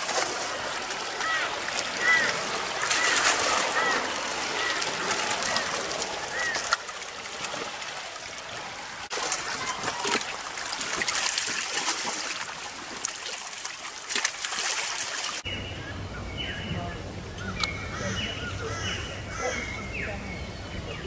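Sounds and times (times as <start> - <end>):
choppy water splashing and lapping: 0.0 - 15.6.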